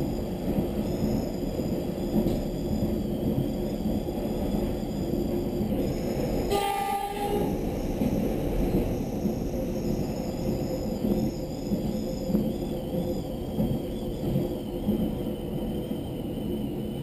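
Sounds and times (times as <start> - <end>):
train wheels rumbling on track: 0.0 - 17.0
train horn: 6.5 - 7.5.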